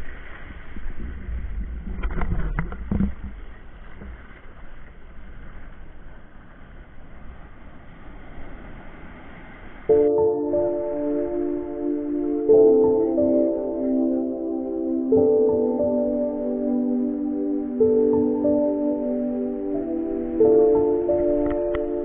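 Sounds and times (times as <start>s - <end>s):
sea surf breaking on shore: 0.0s - 22.0s
wind rumbling on microphone: 0.0s - 22.0s.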